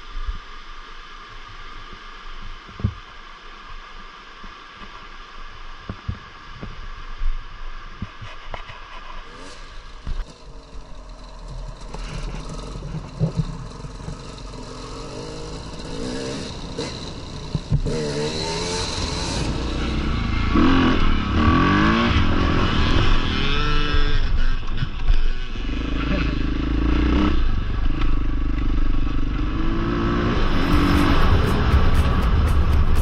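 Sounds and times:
motorcycle engine revving: 9.2 - 33.0.

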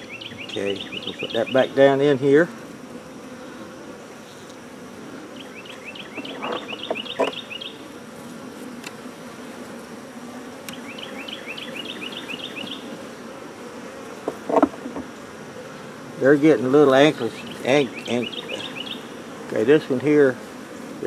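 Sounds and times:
bird chirping: 0.0 - 1.7, 5.3 - 7.8, 10.7 - 12.9, 17.3 - 19.2
bees humming: 0.0 - 21.0
wooden knocks: 6.2 - 7.4, 14.2 - 15.1.

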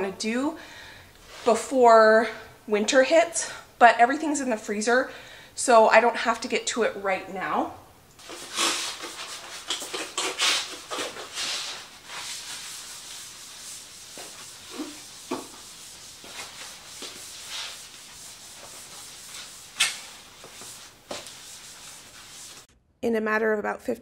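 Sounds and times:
cloth wiping a countertop: 8.2 - 22.7.

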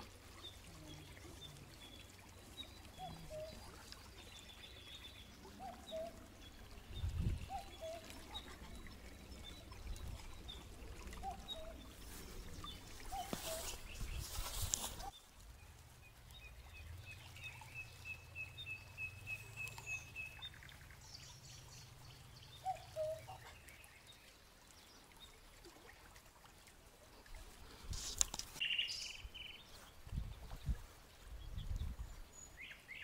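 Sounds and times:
small bird calling: 4.7 - 8.9, 10.5 - 15.1, 22.6 - 23.7
brushing through grass: 12.0 - 15.2, 27.8 - 28.6.

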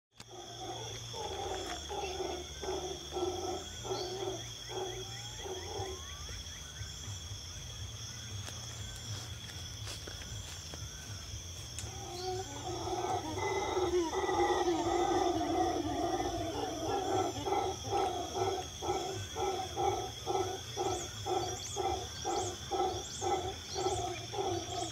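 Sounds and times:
animal calling: 0.2 - 6.3, 11.8 - 24.9.

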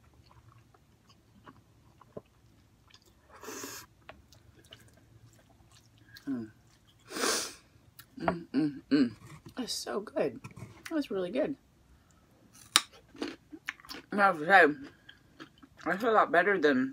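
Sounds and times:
person chewing noodles: 0.0 - 7.1, 13.0 - 14.0, 14.8 - 15.8.

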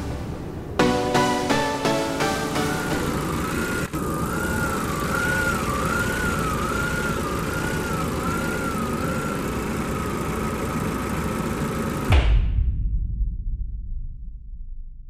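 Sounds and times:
pickup engine idling: 3.0 - 12.1.

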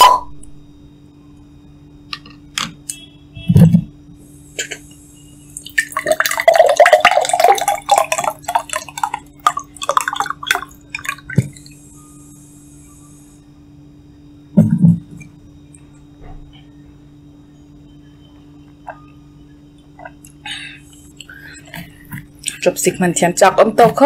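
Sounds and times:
liquid splashing: 5.6 - 11.7.

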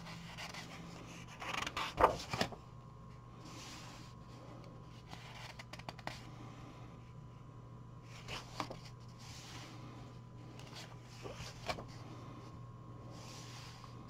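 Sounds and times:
paper page rustling and flapping: 0.0 - 2.6, 5.0 - 6.2, 8.1 - 9.6, 10.5 - 12.0.

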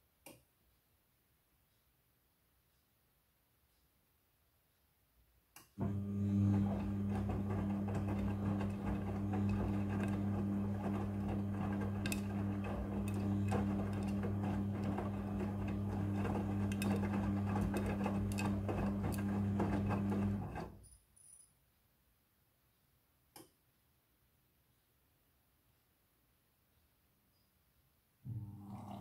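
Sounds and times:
washing machine drum motor humming: 5.8 - 20.8, 28.3 - 29.0.

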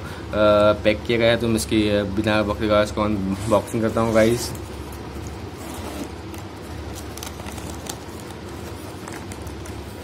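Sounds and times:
plastic bag rustling: 3.9 - 10.0.

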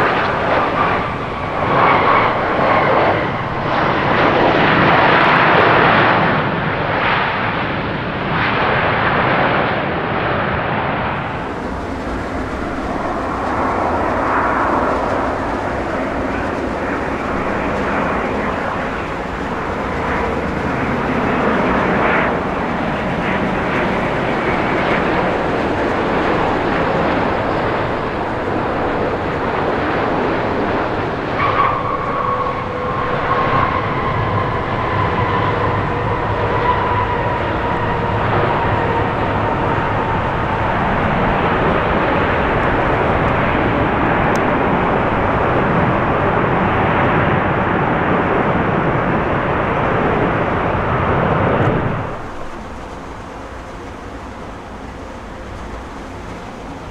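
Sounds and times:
jet engine roar: 0.0 - 56.9
thin whine sliding down: 11.2 - 35.8.

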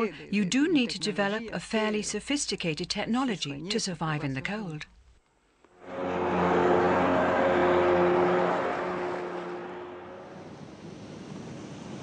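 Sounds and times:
vehicle passing: 5.8 - 11.2.

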